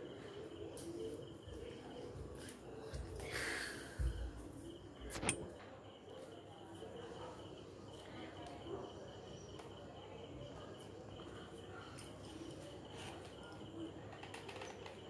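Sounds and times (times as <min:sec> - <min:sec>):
sharp click: 0:05.1 - 0:05.5.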